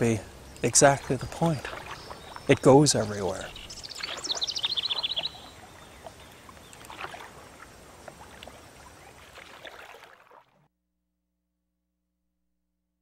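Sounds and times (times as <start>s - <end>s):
quiet water: 0.0s - 10.7s
paddle splashing in water: 0.6s - 10.7s.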